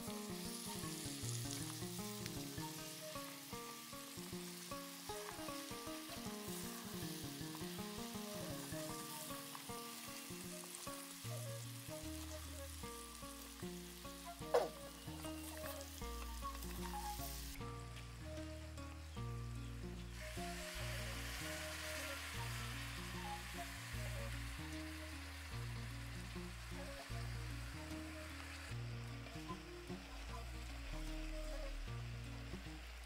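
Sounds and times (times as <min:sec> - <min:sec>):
potatoes sizzling in oil: 0:00.0 - 0:33.0
background music with bass: 0:11.4 - 0:33.0.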